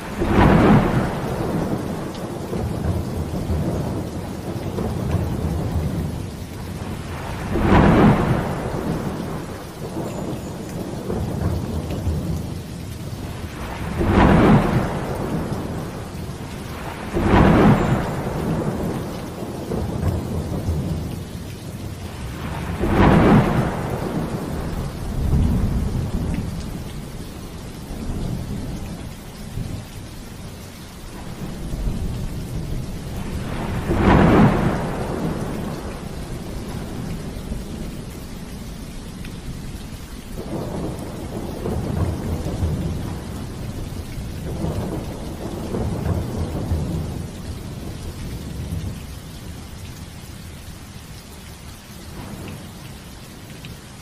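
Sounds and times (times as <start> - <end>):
heavy rain falling: 0.0 - 54.0
thunder claps: 7.0 - 10.3, 13.4 - 21.1, 22.1 - 27.2, 31.1 - 38.1, 40.4 - 43.8.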